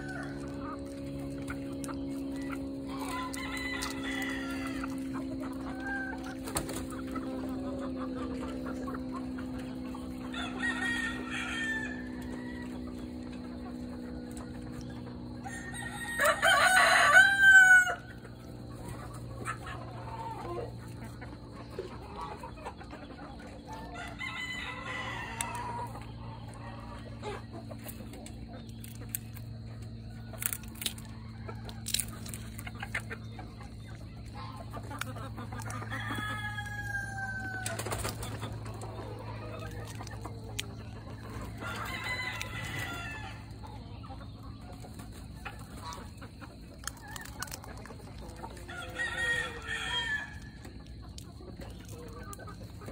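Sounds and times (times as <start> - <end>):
rooster crowing: 0.0 - 1.2, 2.0 - 6.4, 9.9 - 13.3, 15.3 - 18.3, 23.7 - 27.0, 35.7 - 39.7, 41.0 - 43.6, 48.6 - 50.7
chickens calling: 0.0 - 52.9
steady low hum: 0.0 - 52.9.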